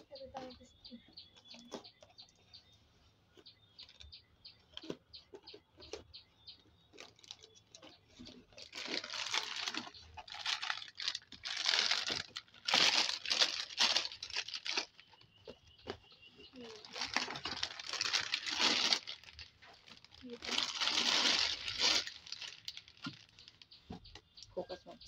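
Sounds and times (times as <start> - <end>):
plastic packets crinkling: 3.8 - 4.1, 6.9 - 24.6.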